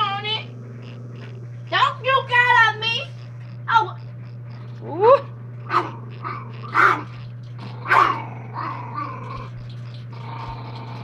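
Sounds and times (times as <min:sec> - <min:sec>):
dog growling: 0:00.0 - 0:11.0
dog barking: 0:05.7 - 0:09.4.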